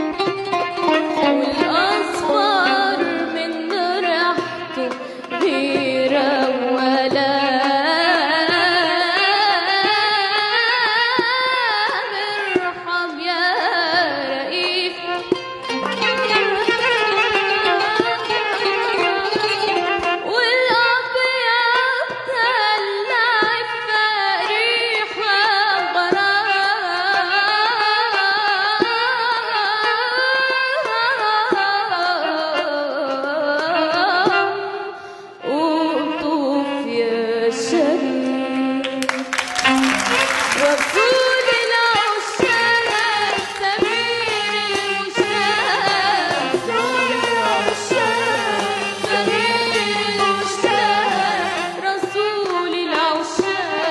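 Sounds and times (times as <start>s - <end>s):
instrumental ensemble: 0.0s - 53.9s
woman singing: 0.9s - 53.9s
hand drum strokes: 14.5s - 20.9s, 39.3s - 53.9s.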